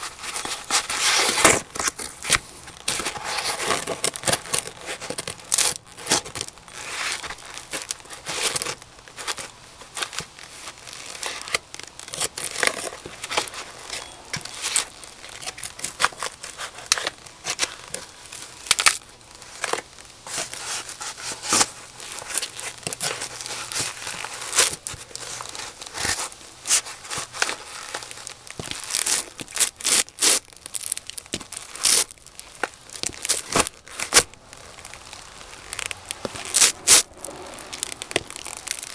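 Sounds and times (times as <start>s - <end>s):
cardboard box crunching underfoot: 0.0s - 38.9s.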